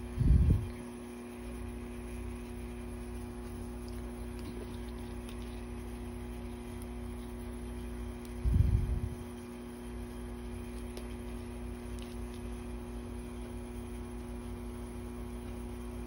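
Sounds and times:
background hum with low tones: 0.0 - 16.0.

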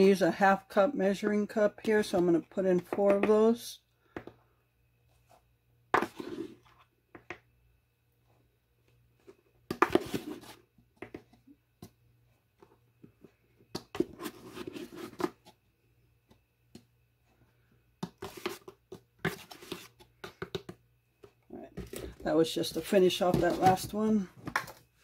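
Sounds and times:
cup scooping flour: 5.9 - 6.9.

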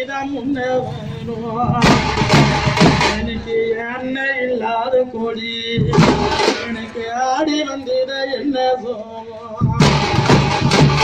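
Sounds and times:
frame drums beating: 1.6 - 3.6, 5.8 - 6.8, 9.6 - 11.0.

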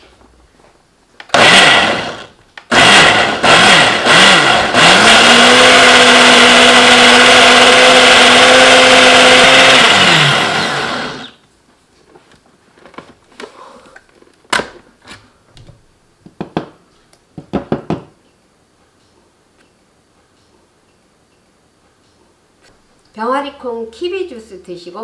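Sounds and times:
blender pureeing: 1.3 - 11.4.

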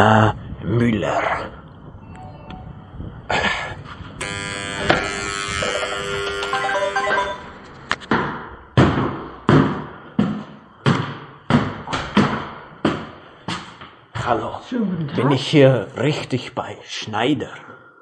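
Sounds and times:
doorbell chime: 5.6 - 7.5
heavy footsteps: 7.6 - 14.4.

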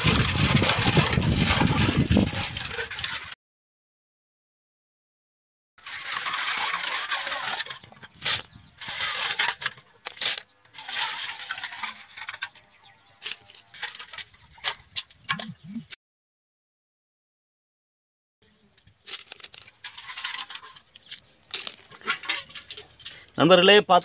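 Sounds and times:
snail shells clattering: 19.0 - 23.4.

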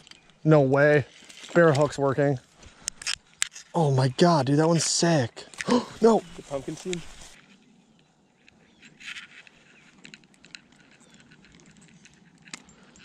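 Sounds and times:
light rustling: 4.6 - 7.7.

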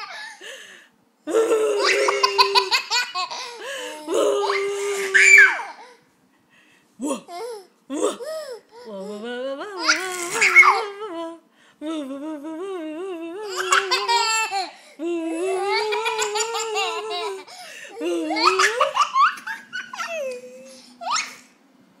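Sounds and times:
toddler laughing: 1.6 - 5.8, 9.8 - 10.9, 13.4 - 14.8, 15.4 - 21.5.

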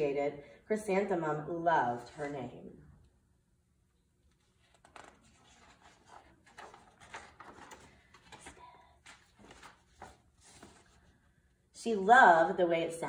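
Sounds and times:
paper pages rustling: 4.2 - 11.4.

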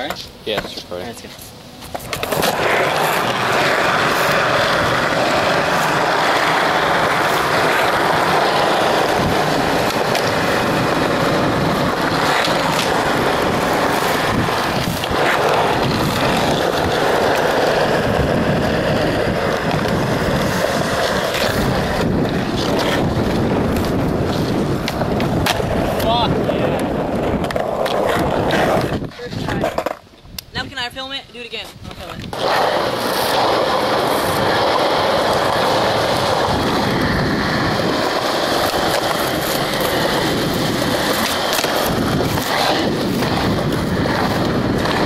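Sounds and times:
skateboard wheels rolling on concrete: 0.0 - 45.0
skateboard clacks: 1.8 - 30.4, 32.0 - 45.0
wind buffeting microphone: 2.1 - 45.0.

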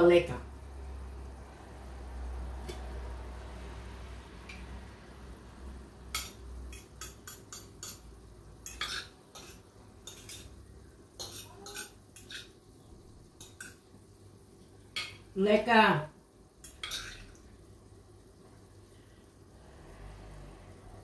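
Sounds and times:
cutlery clinking against dishes: 6.1 - 10.6, 11.2 - 12.6, 16.6 - 17.3.

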